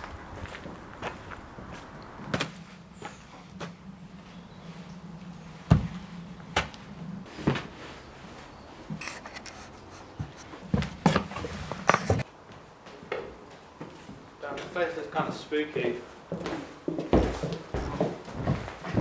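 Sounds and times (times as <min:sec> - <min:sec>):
footsteps on wooden floorboards: 0:00.0 - 0:02.3, 0:10.1 - 0:12.7, 0:16.3 - 0:19.0
scrape on floor: 0:09.0 - 0:10.5.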